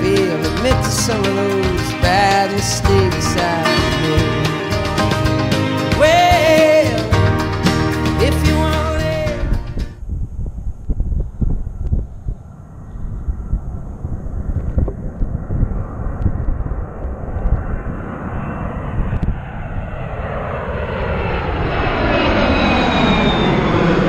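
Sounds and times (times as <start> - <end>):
jet airliner flying overhead: 0.0 - 7.2, 8.5 - 24.0
falling jet engine whine: 0.0 - 24.0.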